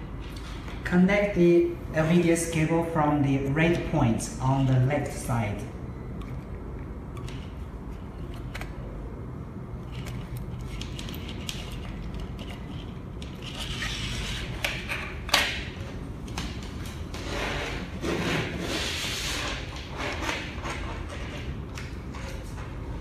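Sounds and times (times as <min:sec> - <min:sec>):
cable connector scraping circuit board: 0:09.8 - 0:15.1.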